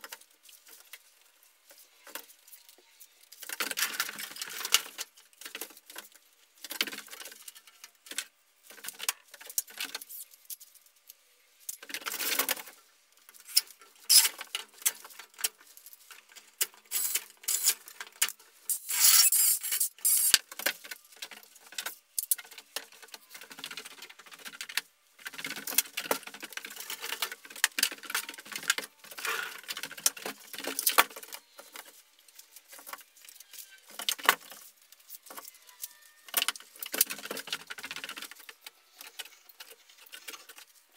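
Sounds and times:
drywall clicks and scraping: 11.8 - 31.9.

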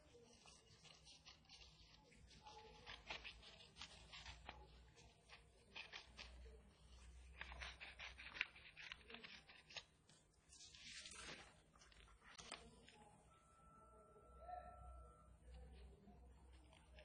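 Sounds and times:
scissors snipping paper: 0.0 - 13.0.

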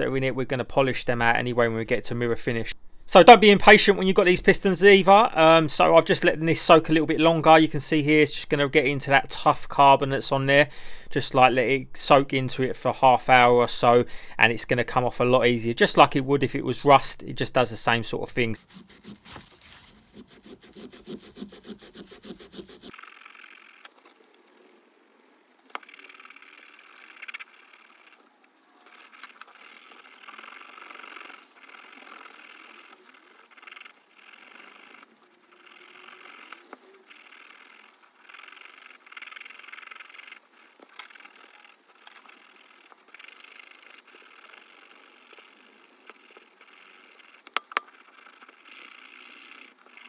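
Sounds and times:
abrasive pad scrubbing metal: 18.6 - 23.6.

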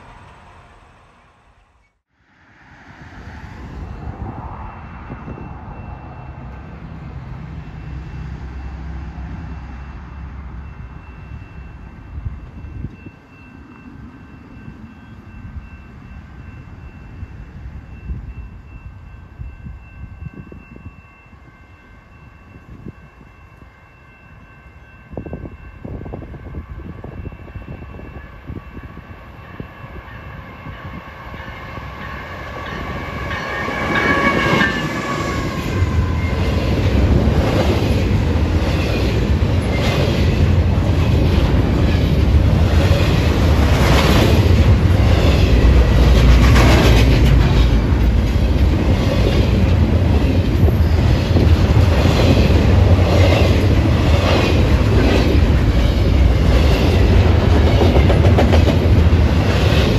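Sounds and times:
freight cars rumbling past: 0.0 - 11.4, 29.6 - 59.9
train horn high tone: 20.4 - 36.5.

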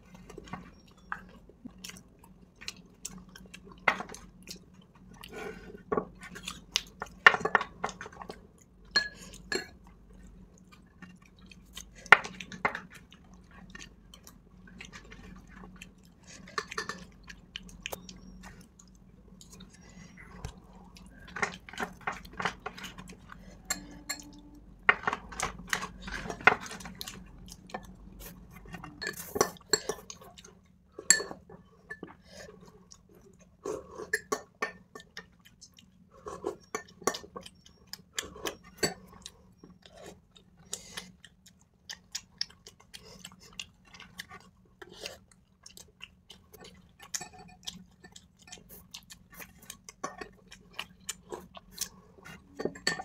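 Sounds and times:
chewing: 0.0 - 53.0
spoons clinking against glass bowls: 9.0 - 9.7, 23.6 - 25.2, 28.9 - 30.0, 31.1 - 31.4, 52.6 - 53.0.

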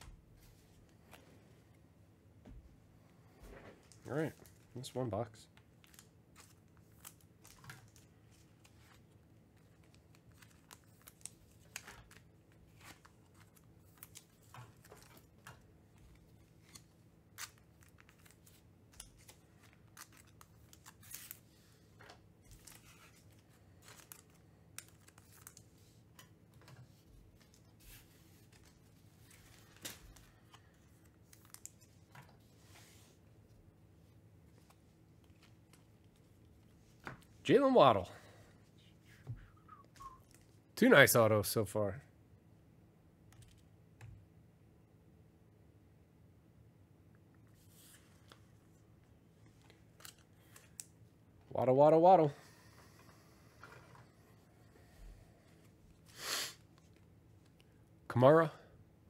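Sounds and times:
card packaging crinkling and tearing: 5.7 - 15.3, 16.3 - 21.6, 22.5 - 25.8.

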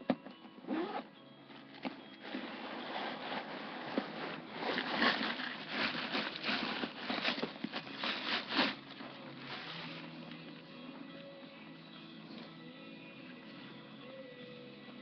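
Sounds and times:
wrapping material crinkling: 2.2 - 10.2.

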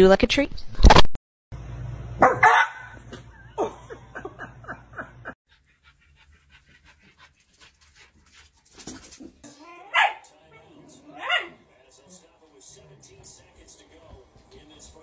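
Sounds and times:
dog barking: 2.2 - 4.0, 9.7 - 10.3, 11.1 - 11.6.

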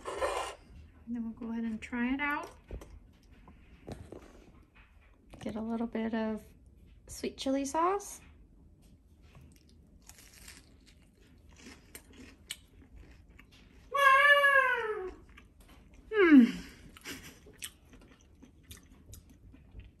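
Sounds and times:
faint chewing clicks: 10.9 - 13.8, 16.9 - 20.0.

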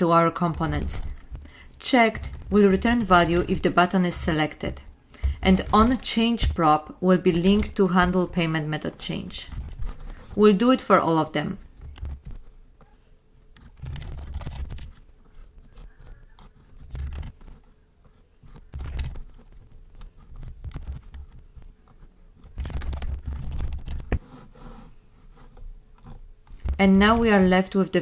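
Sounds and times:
keyboard typing: 0.2 - 10.4, 13.5 - 17.8, 18.5 - 21.7, 22.4 - 24.2, 26.5 - 27.7.

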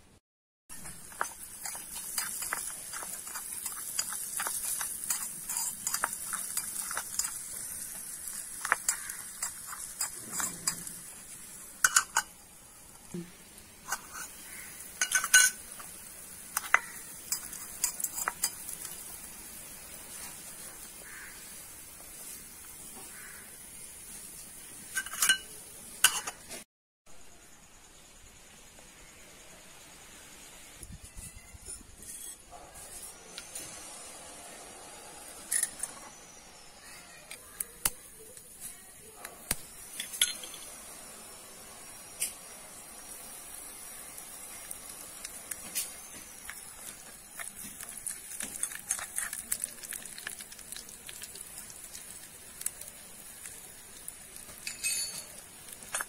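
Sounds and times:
cooking hiss: 0.7 - 56.0
spoon scraping vegetables in pot: 0.8 - 12.4, 13.8 - 19.3, 24.8 - 26.6
spoon clinking on metal pot: 11.8 - 12.4, 15.0 - 15.6, 40.0 - 40.7, 54.5 - 55.4.

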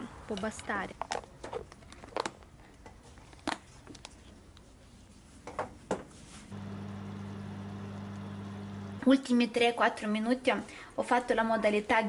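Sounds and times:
electric oven humming: 6.5 - 9.2.

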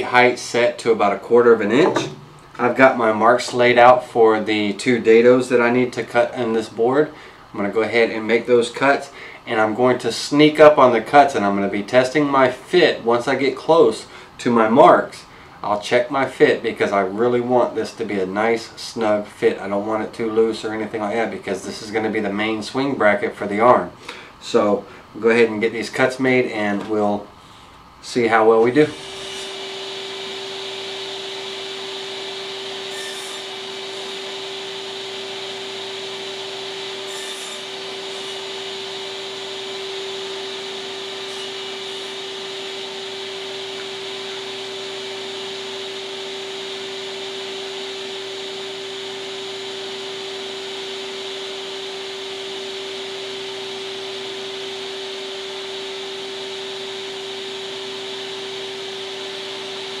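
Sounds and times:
table saw humming: 0.0 - 11.9, 28.2 - 60.0.

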